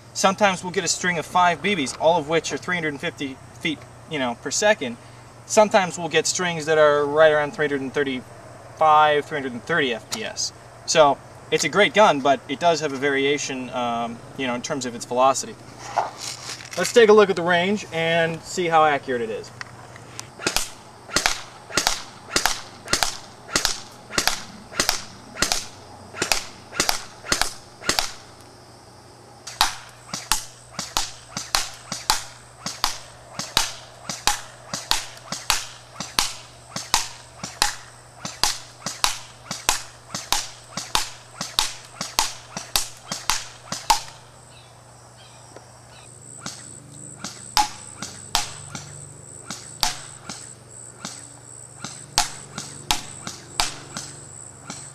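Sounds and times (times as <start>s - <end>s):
airsoft gun firing single shots: 20.4s - 28.3s, 29.5s - 44.3s, 46.4s - 48.9s, 49.5s - 54.9s.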